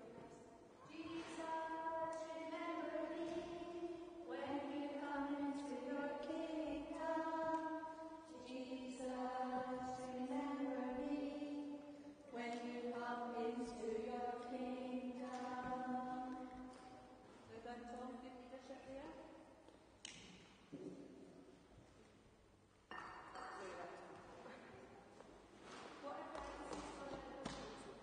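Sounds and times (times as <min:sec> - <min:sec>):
voices singing a hymn: 0:00.9 - 0:16.9.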